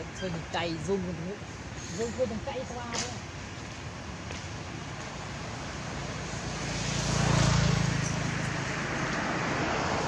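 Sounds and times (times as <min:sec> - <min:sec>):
motor vehicle passing: 0:03.2 - 0:10.0.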